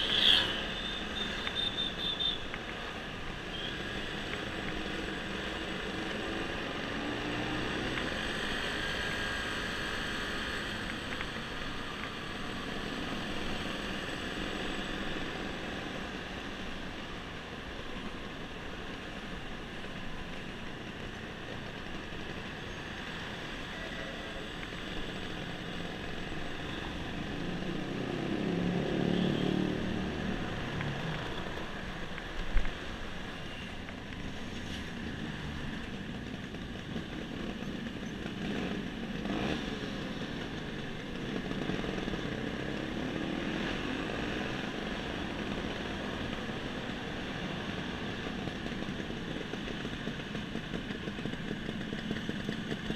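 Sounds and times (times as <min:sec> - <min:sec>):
road and wind noise: 0:00.0 - 0:52.9
scooter engine running: 0:46.2 - 0:52.9.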